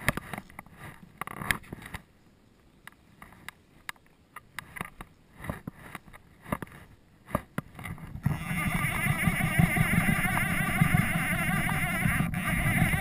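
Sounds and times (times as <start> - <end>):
sleeve rubbing on microphone: 4.6 - 13.0.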